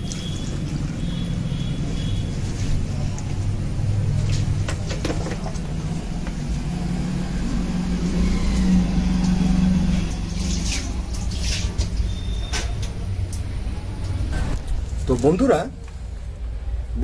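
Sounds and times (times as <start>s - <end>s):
sharp ticks or splashes: 0.0s - 2.4s.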